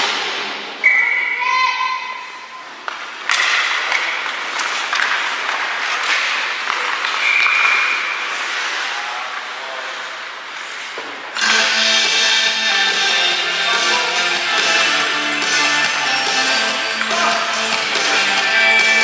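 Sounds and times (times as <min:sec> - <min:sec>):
arena music with guitar: 0:11.4 - 0:19.0.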